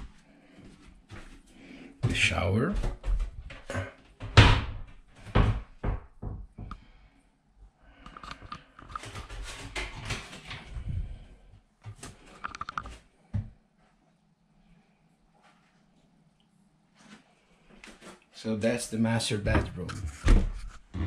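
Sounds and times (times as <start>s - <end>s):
rubbing and rustling: 8.2s - 11.2s.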